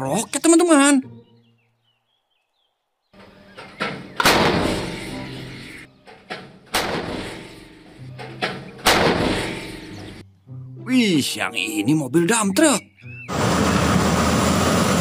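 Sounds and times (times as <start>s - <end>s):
smaller bangs: 3.6s - 5.3s, 6.3s - 10.2s
howitzer booms: 4.0s - 5.3s.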